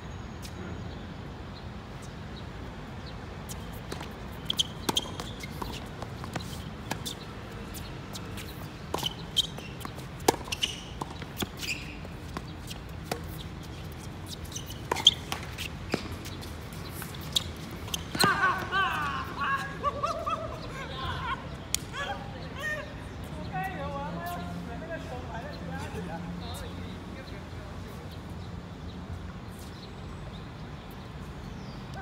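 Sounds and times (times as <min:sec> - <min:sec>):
short high squeaks: 0:04.3 - 0:07.2, 0:08.4 - 0:12.0, 0:12.7 - 0:18.3.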